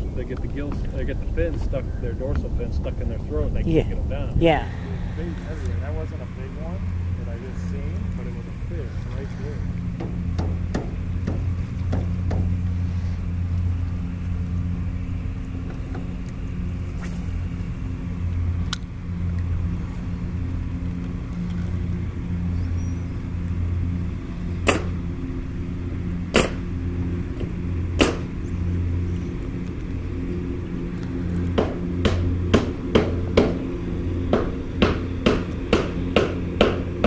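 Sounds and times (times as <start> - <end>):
boat motor humming: 0.0 - 37.0.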